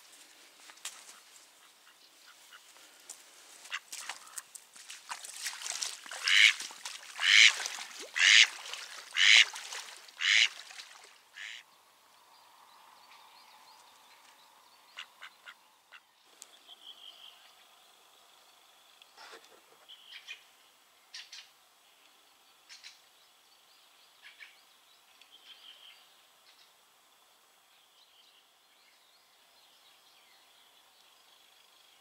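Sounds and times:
duck quacking: 6.2s - 6.6s, 7.2s - 8.5s, 9.1s - 9.5s, 10.2s - 10.5s, 11.4s - 11.6s.

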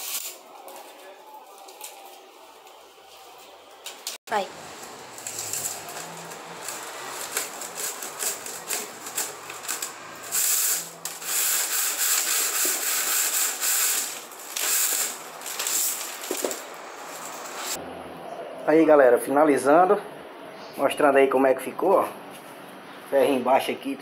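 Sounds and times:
weaving strip scraping through strands: 4.6s - 17.8s.

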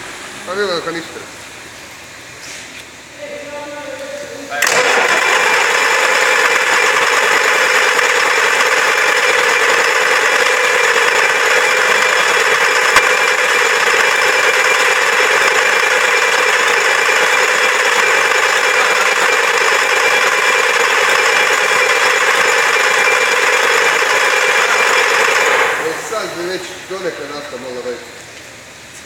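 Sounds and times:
unmuffled diesel engine running: 4.6s - 27.3s.

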